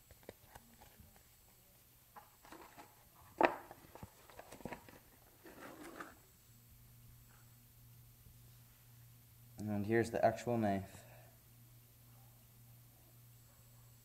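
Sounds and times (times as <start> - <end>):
paper rustle: 2.4 - 6.2.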